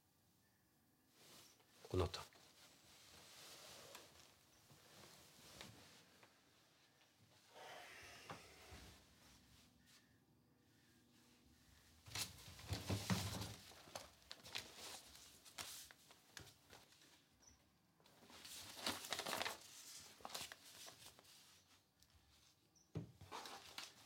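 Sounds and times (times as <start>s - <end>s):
fabric rustling and shuffling: 1.1s - 7.5s, 10.8s - 17.4s, 18.0s - 22.6s, 23.2s - 24.0s.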